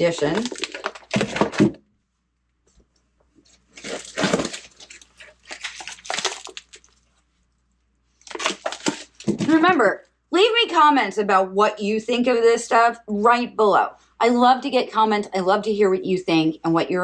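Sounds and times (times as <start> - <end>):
plastic wrap crinkling: 0.0 - 1.8, 3.4 - 7.3, 8.2 - 9.6.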